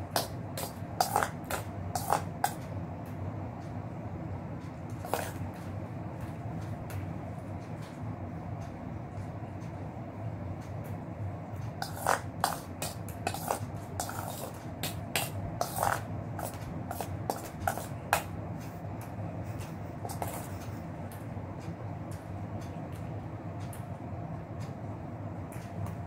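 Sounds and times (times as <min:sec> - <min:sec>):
steady low hum: 0:00.0 - 0:26.0
metal spoon scraping and clinking bowl: 0:00.2 - 0:02.6, 0:05.0 - 0:05.4, 0:11.8 - 0:18.3
slurping milk: 0:13.3 - 0:14.6.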